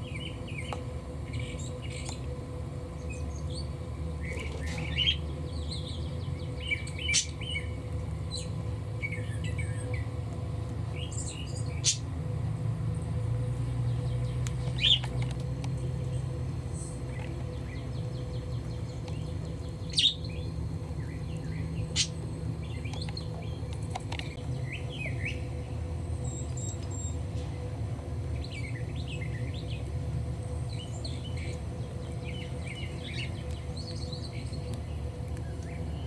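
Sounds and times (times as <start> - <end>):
steady low hum: 0.0 - 36.0
parrots chirping: 19.8 - 20.4.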